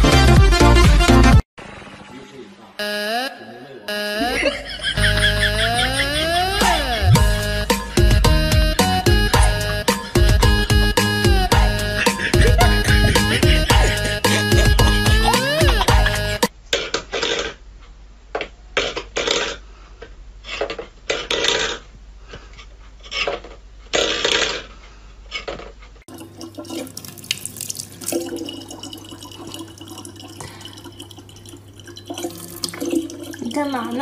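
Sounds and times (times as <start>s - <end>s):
water splashing in bursts: 26.1s - 34.0s.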